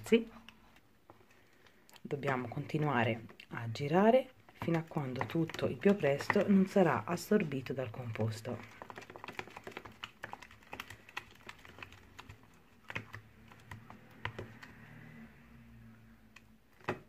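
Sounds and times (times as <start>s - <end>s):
spatula tapping plastic tub: 4.4s - 14.8s.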